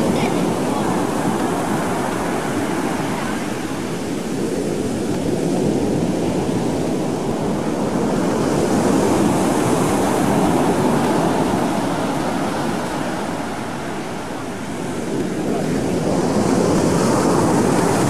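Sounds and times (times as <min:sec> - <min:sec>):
ocean surf breaking on beach: 0:00.0 - 0:18.0.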